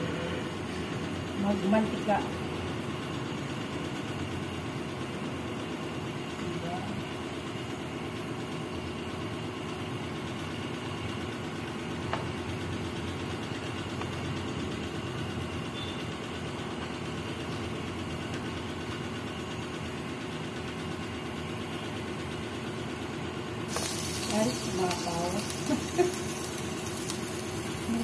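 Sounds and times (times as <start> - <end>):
pan simmering: 23.6 - 28.0.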